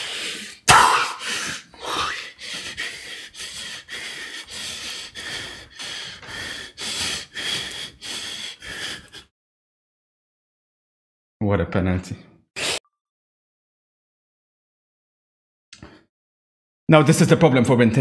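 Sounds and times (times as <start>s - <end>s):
person breathing hard: 0.0s - 9.3s.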